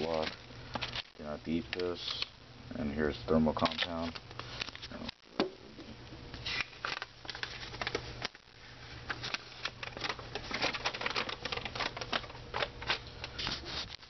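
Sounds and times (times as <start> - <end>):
cardboard and plastic rustling: 0.0 - 2.2, 6.4 - 14.0
low steady hum: 0.0 - 14.0.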